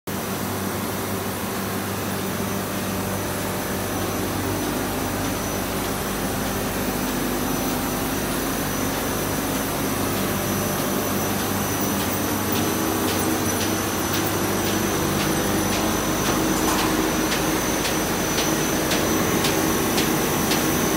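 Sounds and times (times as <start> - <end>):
paper machine humming and whining: 0.1 - 20.9.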